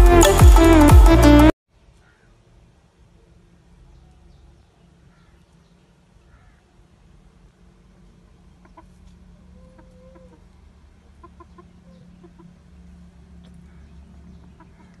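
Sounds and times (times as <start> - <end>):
chickens clucking: 8.4 - 12.8, 13.4 - 15.0.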